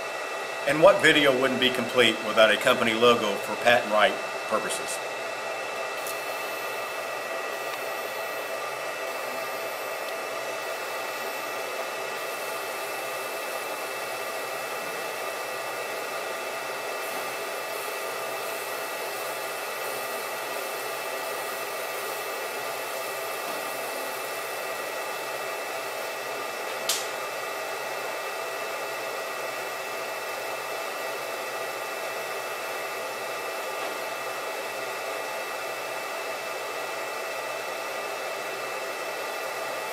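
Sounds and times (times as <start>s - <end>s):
laser marking machine whir: 0.0s - 39.9s
sharp click: 26.8s - 27.1s.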